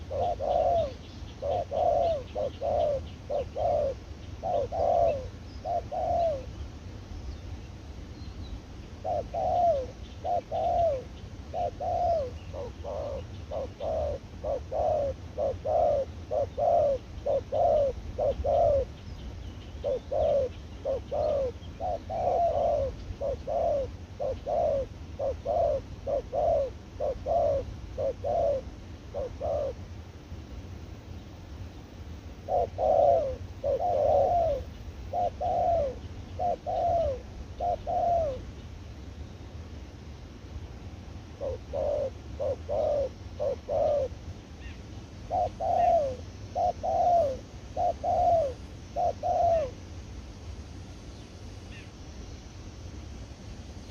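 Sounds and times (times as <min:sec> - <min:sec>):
doves cooing: 0:00.0 - 0:06.6, 0:09.0 - 0:19.0, 0:19.8 - 0:29.9, 0:32.4 - 0:38.5, 0:41.4 - 0:44.2, 0:45.3 - 0:49.8
low steady rumble: 0:22.8 - 0:45.3.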